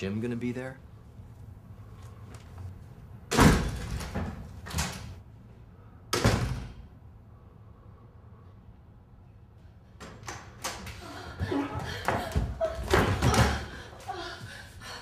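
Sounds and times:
door slamming: 3.3 - 5.1.

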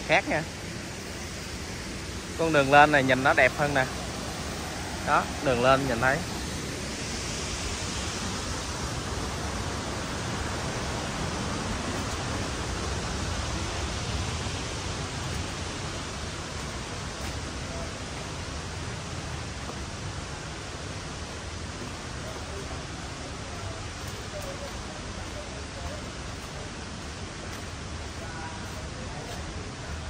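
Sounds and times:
waterfall roaring: 0.0 - 30.0.

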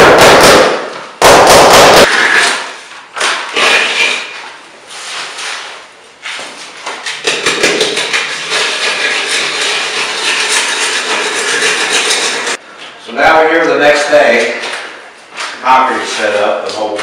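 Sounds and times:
trowel scraping wet concrete: 7.1 - 12.6.

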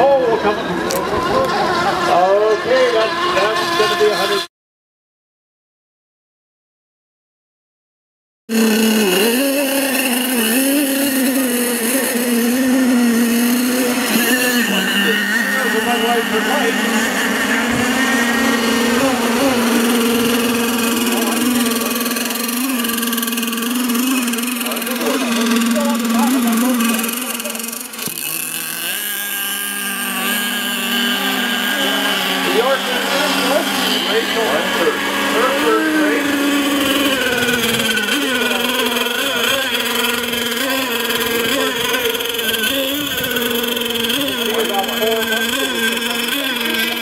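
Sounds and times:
racing boat motors whining: 0.0 - 4.5, 8.5 - 47.0.

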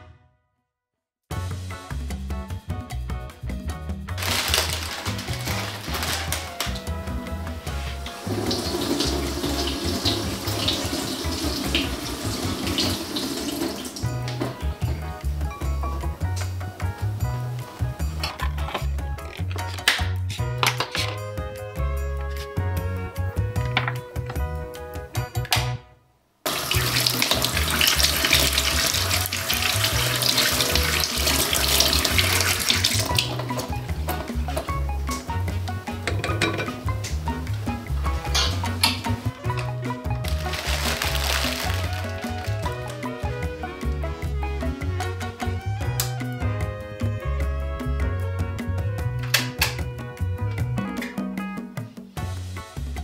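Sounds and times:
tap running into sink: 8.1 - 14.7, 35.9 - 37.2
tap water splashing: 8.4 - 14.6, 26.5 - 35.3.

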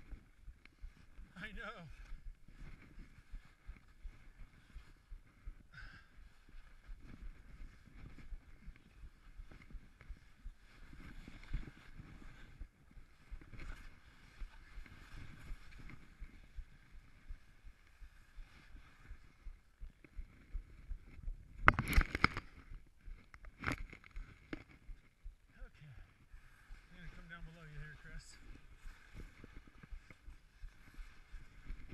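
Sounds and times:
skis scraping on snow: 6.9 - 19.4, 25.8 - 31.9.

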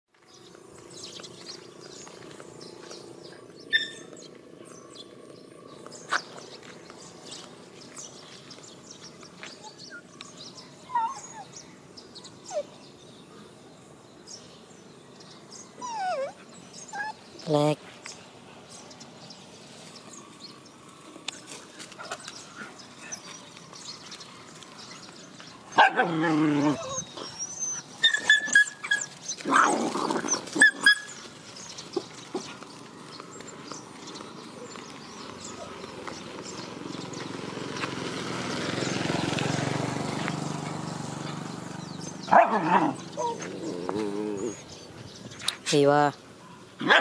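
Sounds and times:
dogs barking and yelping: 3.6 - 4.2, 9.5 - 11.6, 15.7 - 17.4, 24.2 - 32.6, 41.9 - 45.0, 46.4 - 47.0.

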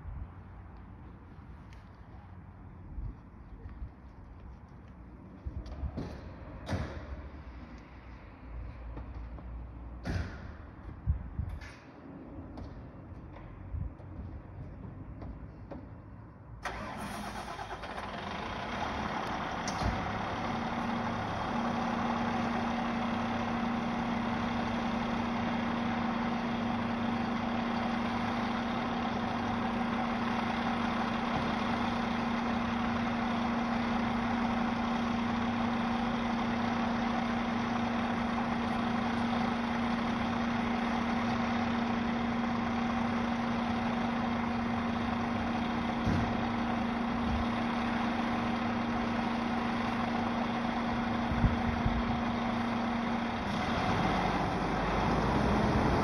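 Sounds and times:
diesel engine starting and idling: 16.5 - 56.0.

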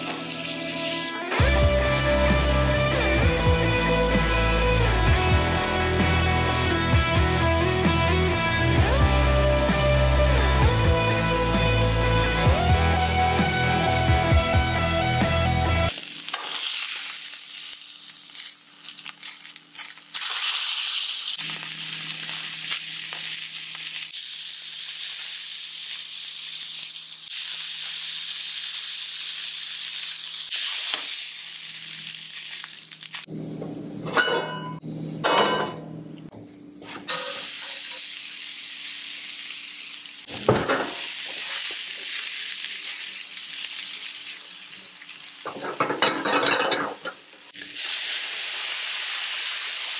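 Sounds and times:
steak sizzling in a skillet: 0.0 - 1.2, 15.9 - 33.3, 37.1 - 49.9
metal tongs scraping and clattering: 45.5 - 47.2.

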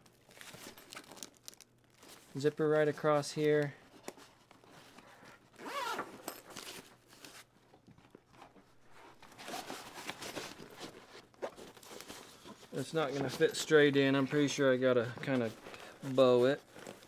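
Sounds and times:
zipper being pulled: 5.6 - 6.4.

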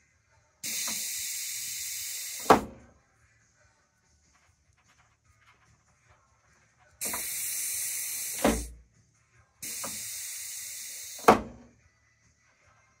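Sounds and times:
compressed air hiss: 0.6 - 2.8, 7.0 - 8.8, 9.6 - 11.6.

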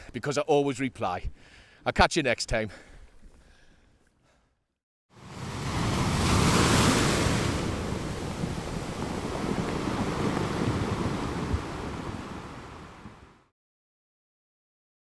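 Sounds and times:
sea waves breaking: 5.2 - 13.5.

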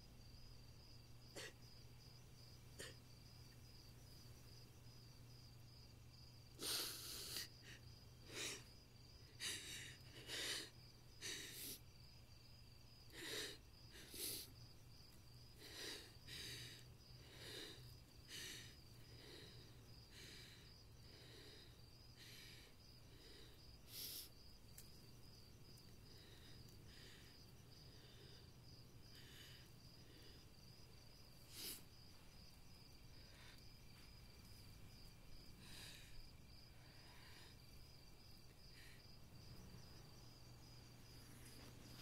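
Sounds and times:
crickets chirping: 0.0 - 42.0
woman sobbing and sniffling: 1.3 - 1.7, 6.5 - 11.8, 13.1 - 14.6.

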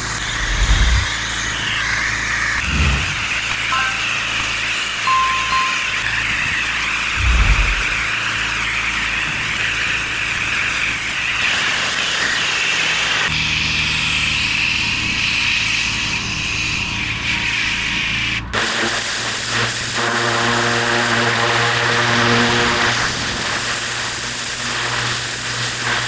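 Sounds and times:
pressure washer water jet hissing: 0.0 - 1.7
engine hum: 0.0 - 4.6, 6.0 - 11.0.

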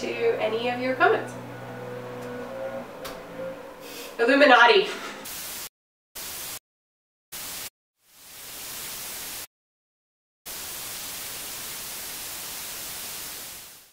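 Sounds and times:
tv static hiss: 5.3 - 6.6, 7.4 - 9.5, 10.5 - 13.9.

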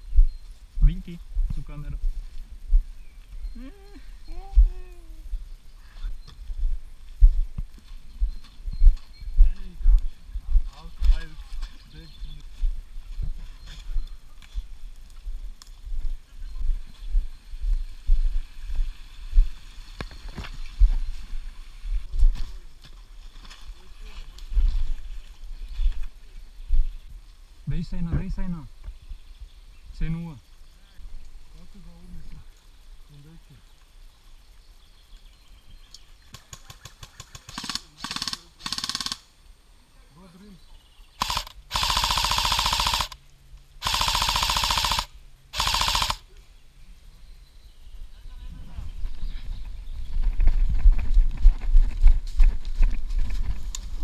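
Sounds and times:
footsteps through undergrowth: 0.0 - 27.7, 49.0 - 54.0
sharp snaps: 35.9 - 39.3, 41.2 - 43.2
airsoft rifle automatic bursts: 36.6 - 39.3, 41.2 - 43.2, 43.8 - 46.2.

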